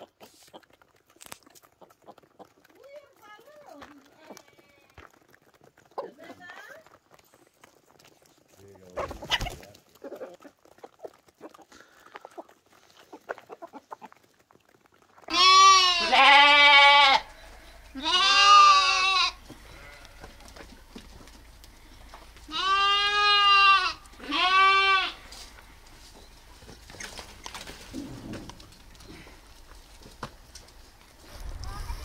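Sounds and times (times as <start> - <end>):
chickens pecking grain: 0.0 - 32.0
lambs bleating: 15.3 - 20.4, 22.4 - 25.6.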